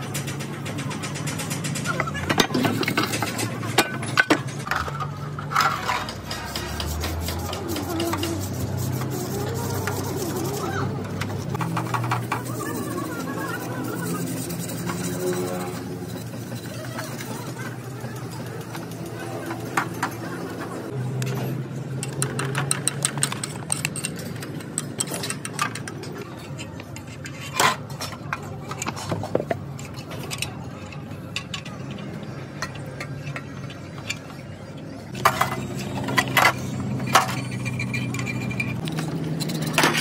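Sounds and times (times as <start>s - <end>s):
metal tools clinking: 0.0s - 8.6s, 21.3s - 40.0s.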